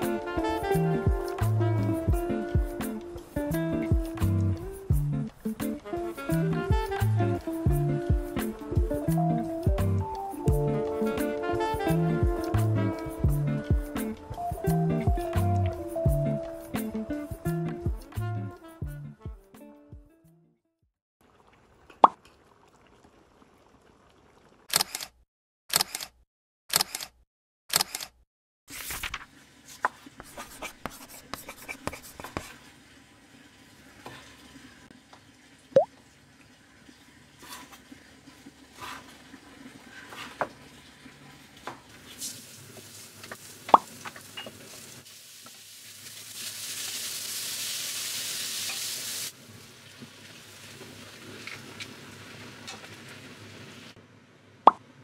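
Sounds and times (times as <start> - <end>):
spatula stirring vegetables in pan: 38.7 - 39.2, 39.9 - 40.6.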